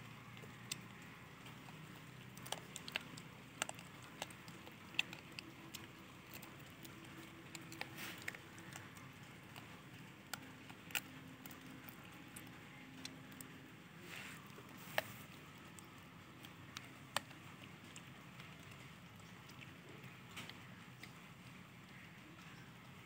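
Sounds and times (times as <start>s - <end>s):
faint clicks and ticks: 0.0s - 23.0s.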